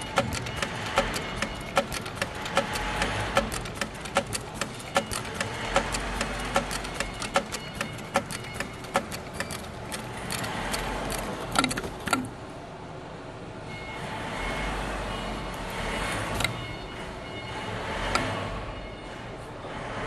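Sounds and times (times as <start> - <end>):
sewing machine needle clicking: 0.0 - 12.3.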